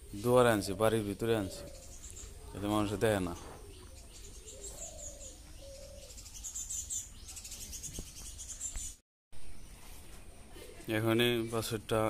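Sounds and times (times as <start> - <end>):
birds chirping: 0.0 - 12.0
low cooing call: 3.4 - 6.4.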